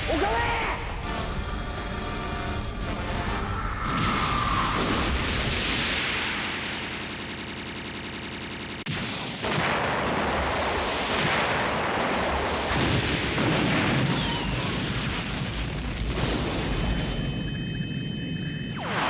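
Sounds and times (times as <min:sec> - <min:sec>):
barrage of explosions: 0:00.0 - 0:08.1, 0:08.8 - 0:19.0
high-pitched whine: 0:01.0 - 0:04.8.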